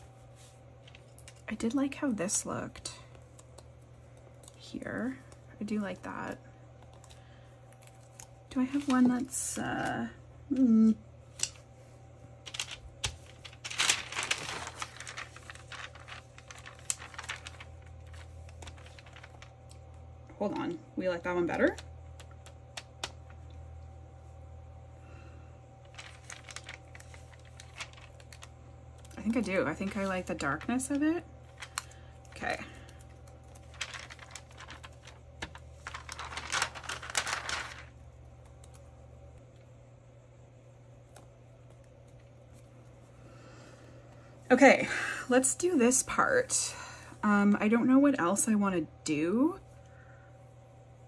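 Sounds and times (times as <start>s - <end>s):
paper rustling and crinkling: 6.9s - 9.4s, 12.4s - 19.9s, 25.8s - 38.0s.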